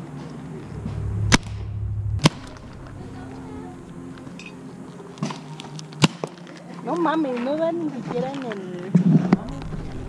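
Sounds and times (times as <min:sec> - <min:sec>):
paintball marker pops: 0:06.0 - 0:06.3.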